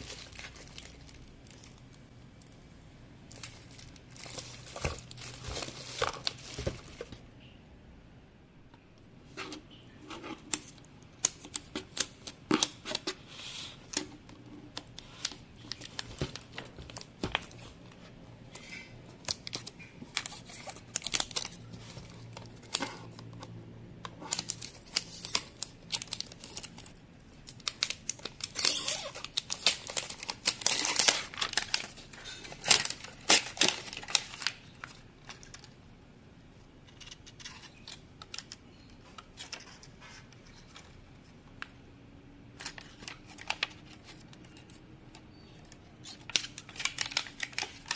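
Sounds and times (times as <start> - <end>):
plastic shrink wrap crinkling: 0.0 - 2.6, 3.3 - 7.2, 14.7 - 23.4, 24.2 - 35.8, 46.0 - 47.9.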